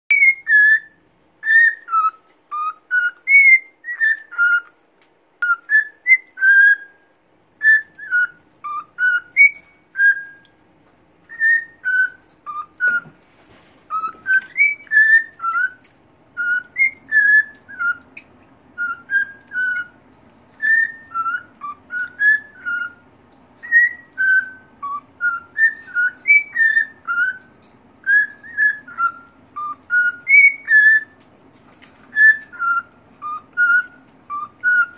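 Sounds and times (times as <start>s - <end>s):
cockatiel whistling: 0.1s - 4.8s, 5.4s - 10.6s, 11.2s - 13.2s, 13.9s - 20.0s, 20.6s - 31.2s, 31.8s - 34.9s.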